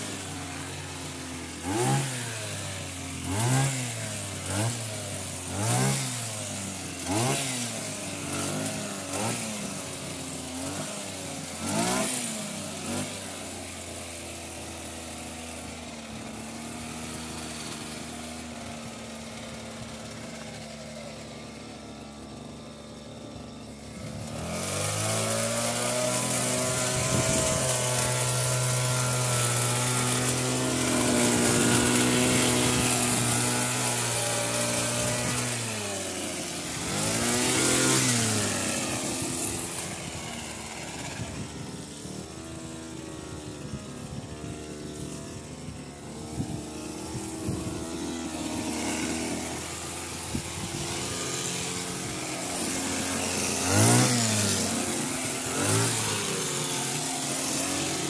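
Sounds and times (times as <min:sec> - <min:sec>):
hedge trimmer engine revving: 0:00.0 - 0:58.0.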